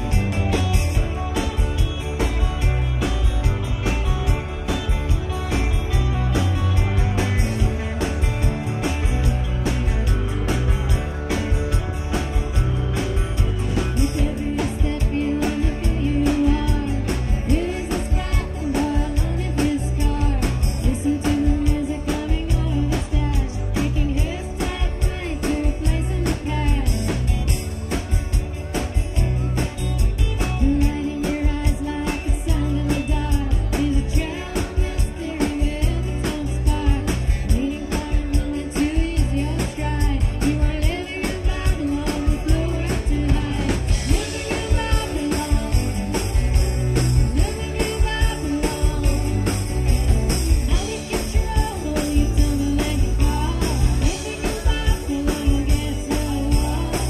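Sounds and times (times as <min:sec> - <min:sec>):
drums with steady beat: 0:00.0 - 0:57.0
electric guitars: 0:00.0 - 0:57.0
strummed acoustic guitar: 0:00.0 - 0:57.0
woman singing: 0:13.7 - 0:27.6, 0:30.4 - 0:57.0.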